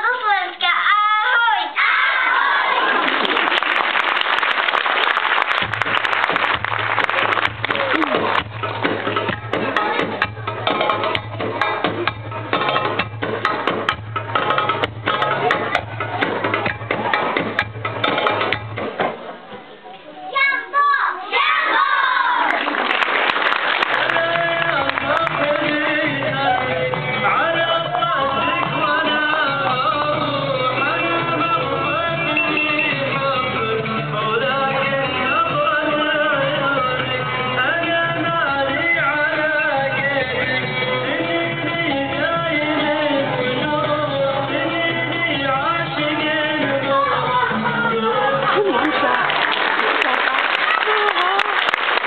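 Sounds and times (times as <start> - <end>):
audience applause and cheering: 1.8 - 10.1, 21.6 - 27.6, 47.0 - 52.0
sharp individual claps: 3.1 - 11.2, 22.5 - 26.0
music with held notes and bass: 5.6 - 19.1, 24.0 - 49.0
children singing: 46.6 - 49.2.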